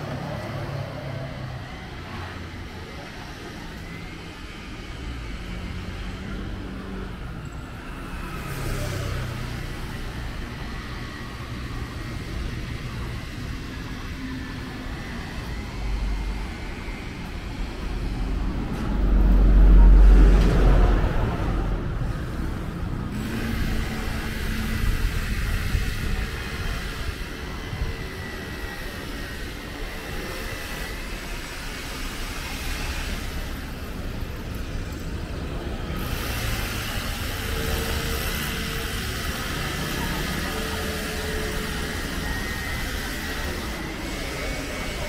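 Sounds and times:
steady traffic hum: 0.0s - 45.0s
vehicle passing close: 15.6s - 26.8s.

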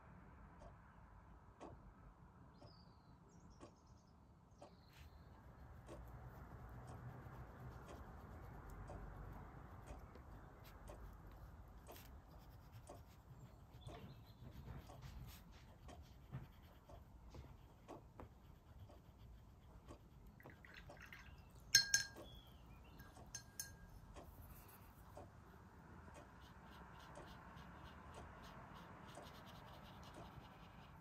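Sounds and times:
crayon tapping and scratching paper: 5.4s - 20.6s, 26.2s - 31.0s
glass jar clinking: 21.7s - 22.4s.

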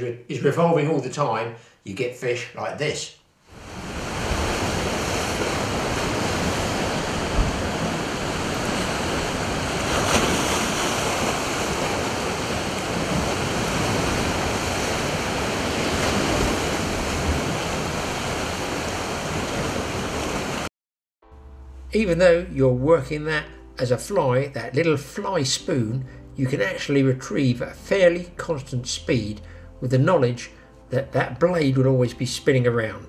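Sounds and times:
surf breaking against rocks: 3.6s - 20.7s.

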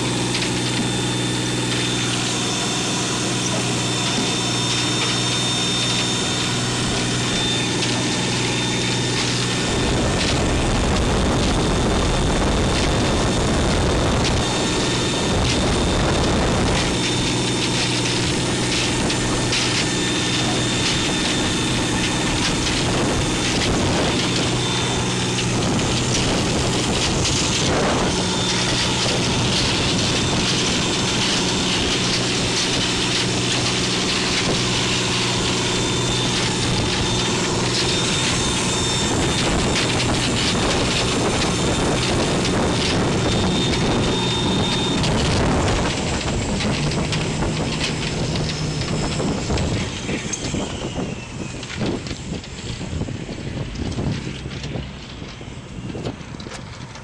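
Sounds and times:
boat engine running: 0.0s - 57.0s
wind: 0.0s - 57.0s.

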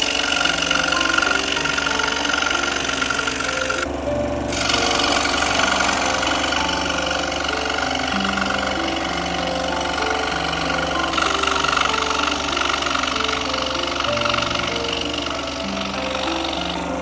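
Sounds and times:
high whine: 0.0s - 17.0s
scroll saw cutting plywood: 0.0s - 17.0s.

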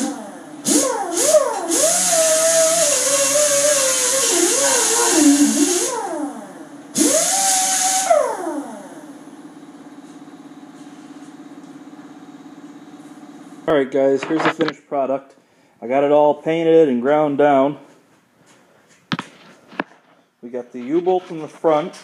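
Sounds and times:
air grinder grinding steel: 0.0s - 6.1s
exhaust air hiss: 0.0s - 6.4s, 7.0s - 8.8s.

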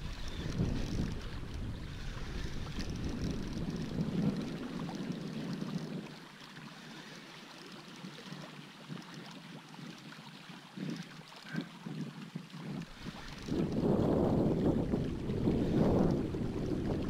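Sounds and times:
wind buffeting microphone: 0.0s - 6.2s, 10.8s - 17.0s
shallow surf washing: 0.0s - 7.3s, 12.8s - 17.0s.

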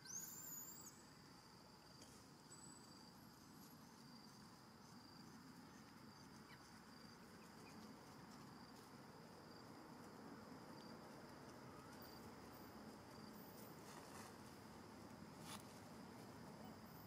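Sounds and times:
faint short insect chirps: 0.0s - 7.8s.

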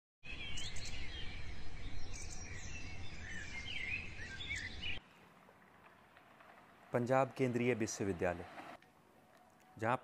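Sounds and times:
birds chirping: 0.2s - 8.8s.

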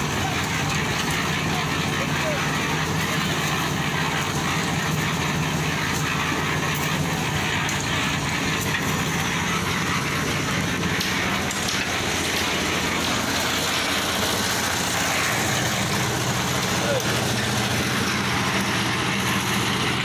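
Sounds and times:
concrete mixer engine running: 0.0s - 20.0s.

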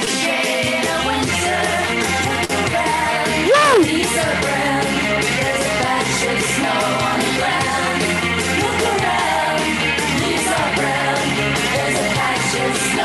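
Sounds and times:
rock music with singing: 0.0s - 13.0s
vocal whoop: 3.4s - 4.0s.

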